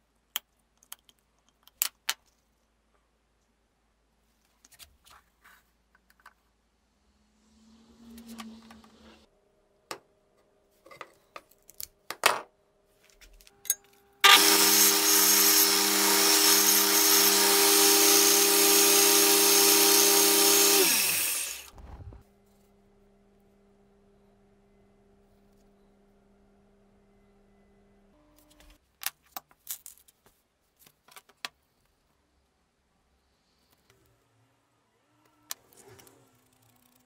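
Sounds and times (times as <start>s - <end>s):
belt grinder running: 14.2s - 22.2s.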